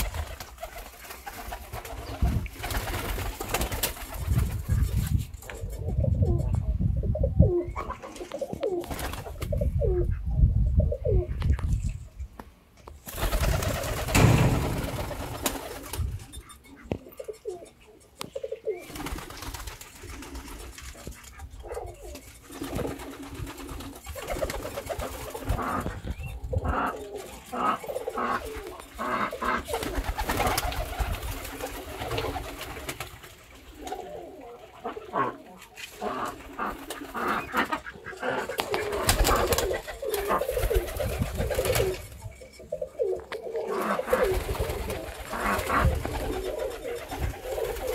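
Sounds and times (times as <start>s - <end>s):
pigeons cooing: 5.4s - 11.8s, 13.2s - 47.9s.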